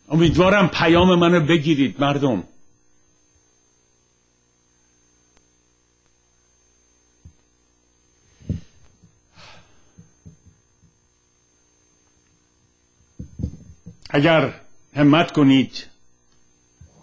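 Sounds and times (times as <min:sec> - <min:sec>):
electrical mains hum: 0:00.0 - 0:17.0
faint high whine: 0:00.0 - 0:17.0
low thump: 0:13.2 - 0:14.0
soft knocks: 0:13.2 - 0:14.0.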